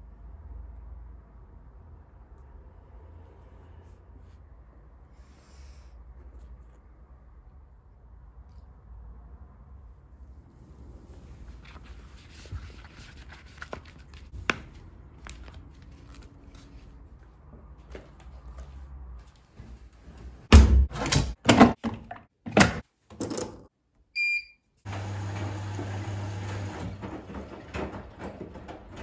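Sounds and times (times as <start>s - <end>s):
appliance electronic beep: 24.2s - 24.6s
washing machine humming: 24.2s - 29.0s.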